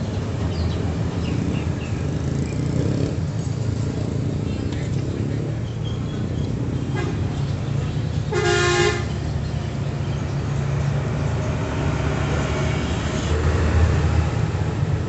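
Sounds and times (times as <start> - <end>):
passing traffic rumble: 0.0 - 15.0
vehicle horn toot: 8.3 - 9.1.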